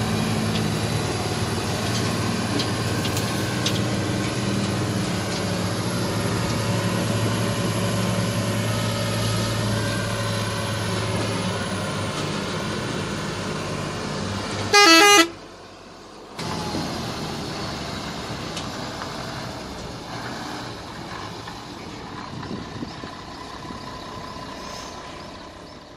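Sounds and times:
truck diesel engine running: 0.0s - 25.9s
loud pulsing horn blast: 14.7s - 15.4s.

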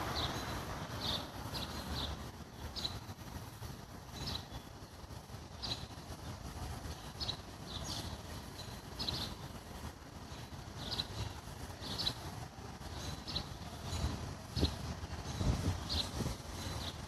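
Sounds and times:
small bird chirping: 4.1s - 4.7s, 5.6s - 9.6s, 10.3s - 12.3s, 12.9s - 17.0s.

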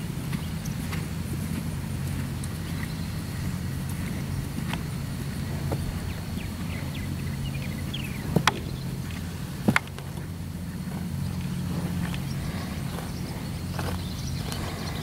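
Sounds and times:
hoofbeats on grass: 0.0s - 15.0s
steady low hum: 0.0s - 15.0s.

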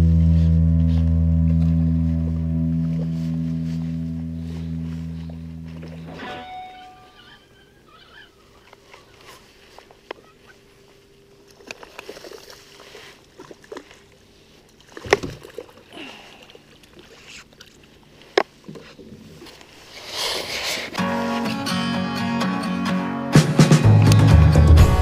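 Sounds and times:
guitar music: 0.0s - 7.2s, 21.0s - 25.0s
fish thrashing and splashing: 8.0s - 21.0s.

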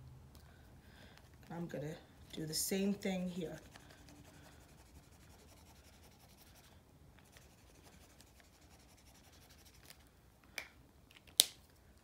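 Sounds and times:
marker scratching on plastic: 3.5s - 10.0s.

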